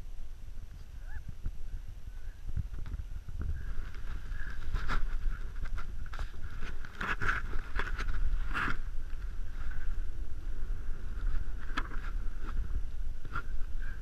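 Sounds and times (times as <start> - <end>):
wind rumbling on microphone: 0.0 - 14.0
sliding on snow: 2.4 - 14.0.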